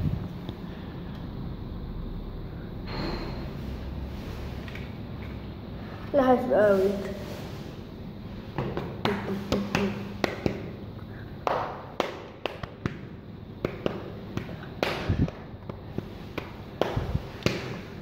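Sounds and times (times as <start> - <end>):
playing cards tapping and clicking: 8.6 - 10.8, 11.4 - 17.9.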